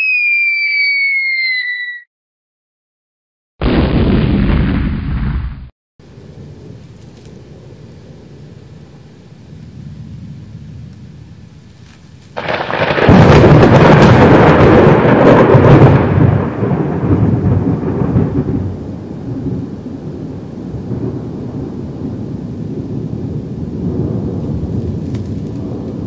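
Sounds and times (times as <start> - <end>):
thunderclap with rumble: 12.3 - 26.0.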